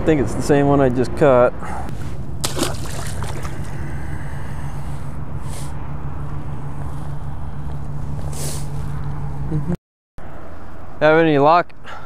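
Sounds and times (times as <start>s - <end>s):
steady low hum: 1.7s - 9.8s
rumbling background: 1.9s - 9.7s.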